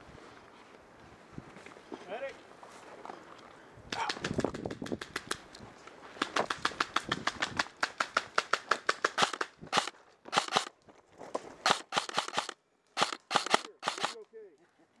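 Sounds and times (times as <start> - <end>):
airsoft rifle firing rapidly: 6.3 - 10.7, 11.7 - 14.2.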